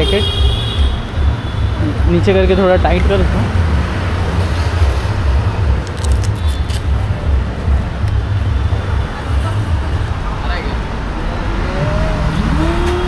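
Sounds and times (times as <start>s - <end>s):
low rumble of passing vehicles: 0.0s - 13.0s.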